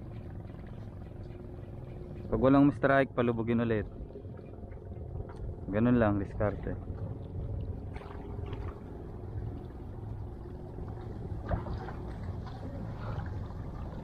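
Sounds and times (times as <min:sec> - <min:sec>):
faint steady hum: 0:00.0 - 0:14.0
sea water: 0:00.0 - 0:14.0
wind rumble: 0:00.0 - 0:14.0.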